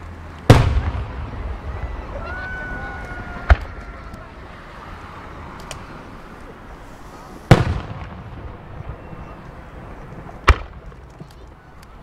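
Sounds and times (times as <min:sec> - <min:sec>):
firework boom with echo: 0:00.5 - 0:02.1, 0:07.5 - 0:09.4.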